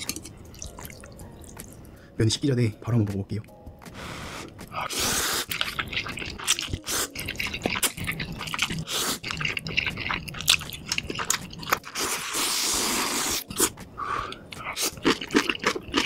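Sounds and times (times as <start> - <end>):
chewing noodles: 4.6 - 16.0
sucking slurps: 4.8 - 13.7.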